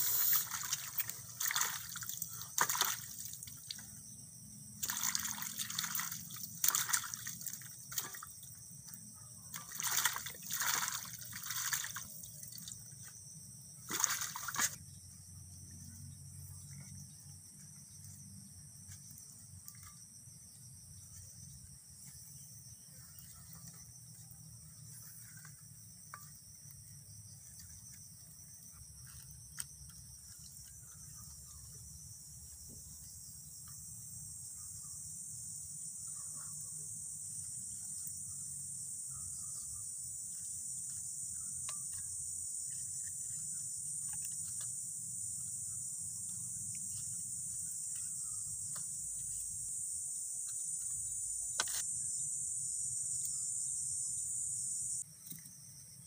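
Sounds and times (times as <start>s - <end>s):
insect chorus: 0.0s - 56.0s
water dripping: 0.3s - 3.9s, 4.8s - 8.5s, 9.5s - 12.8s
water splashing in a metal basin: 0.3s - 3.9s, 4.8s - 8.4s, 9.5s - 12.9s, 13.8s - 14.8s.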